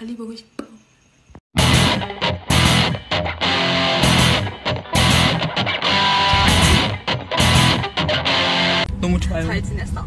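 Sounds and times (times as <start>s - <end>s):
strummed electric guitar music: 1.6s - 8.9s.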